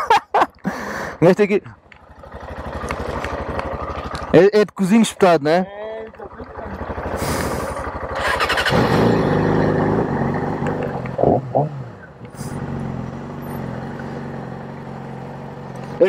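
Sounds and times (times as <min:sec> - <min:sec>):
motorcycle engine idling and revving: 0:00.0 - 0:16.0.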